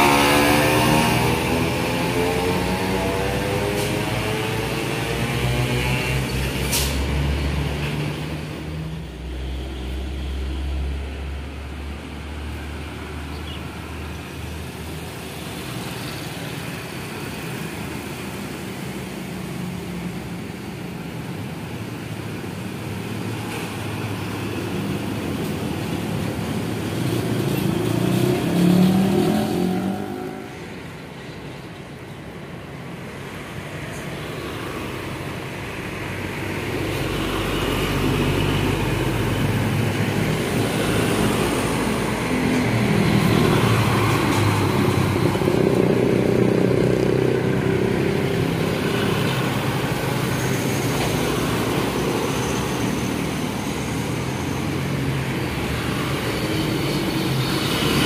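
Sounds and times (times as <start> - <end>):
motorcycles passing: 0.0 - 8.8, 10.1 - 58.0
tyre and traffic noise: 0.0 - 58.0
vehicle approaching and passing: 0.0 - 58.0
diesel truck engine passing: 23.2 - 58.0.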